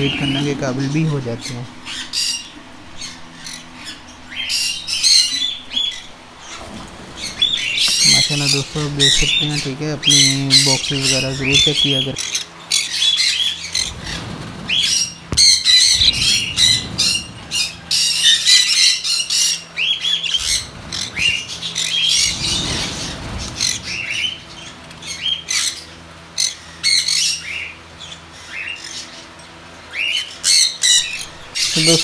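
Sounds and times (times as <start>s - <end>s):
budgerigars squawking and chirping: 0.0s - 32.0s
bird wings flapping: 4.6s - 8.2s, 13.7s - 18.6s, 20.3s - 24.8s.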